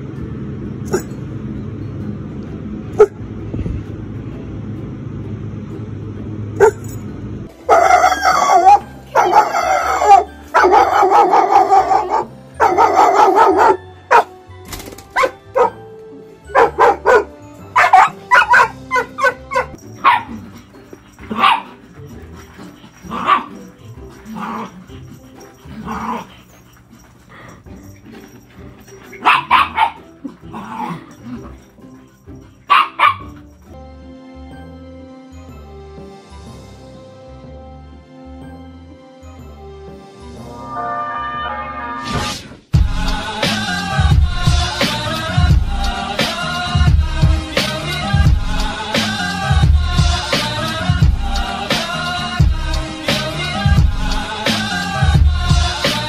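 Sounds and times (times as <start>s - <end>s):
low outdoor rumble: 0.0s - 13.7s
dog yips: 6.6s - 6.8s, 7.7s - 14.3s, 15.2s - 15.8s, 16.6s - 20.5s, 21.3s - 21.8s, 23.0s - 26.3s, 29.1s - 30.9s, 32.7s - 33.4s
dogs barking: 6.6s - 7.0s, 7.6s - 14.4s, 15.1s - 15.9s, 16.5s - 33.7s.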